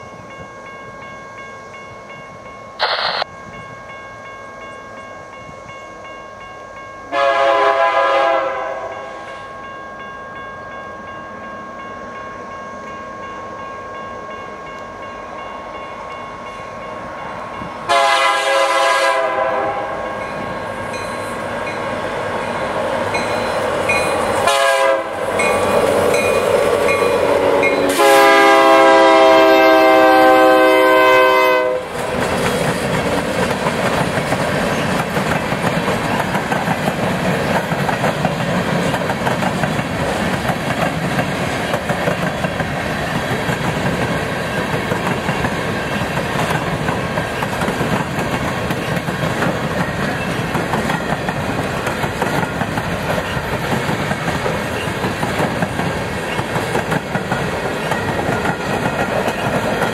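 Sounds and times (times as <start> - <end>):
locomotive air horn blasts: 7.1 - 9.1, 17.9 - 20.0, 24.4 - 25.2, 27.3 - 31.9
train rumbling: 11.8 - 59.9
train wheels on rails: 14.3 - 59.9.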